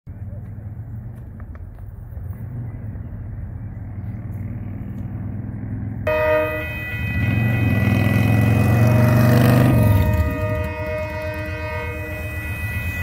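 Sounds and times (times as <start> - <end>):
road vehicle passing: 0.1 - 13.0
locomotive air horn: 6.1 - 13.0.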